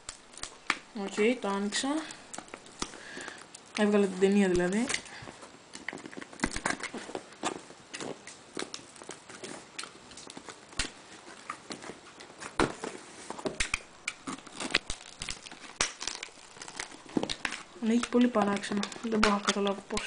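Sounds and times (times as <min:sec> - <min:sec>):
cardboard and paper crackles: 0:00.0 - 0:20.0
fingers tearing cardboard: 0:05.9 - 0:20.0.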